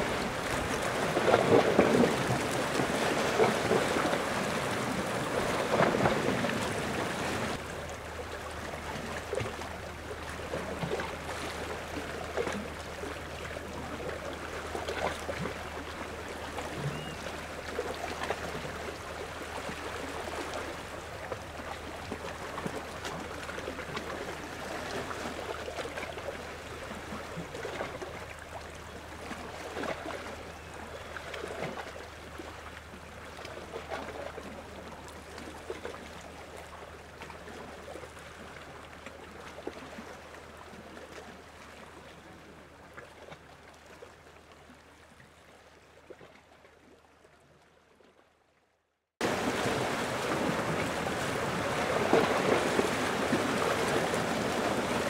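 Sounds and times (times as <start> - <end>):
small waves lapping at shore: 0.0 - 48.5, 49.2 - 55.0.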